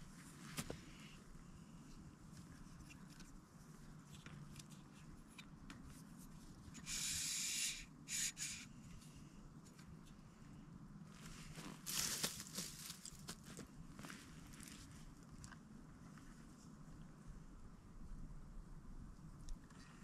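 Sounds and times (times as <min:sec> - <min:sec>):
rustling: 0:11.1 - 0:15.1.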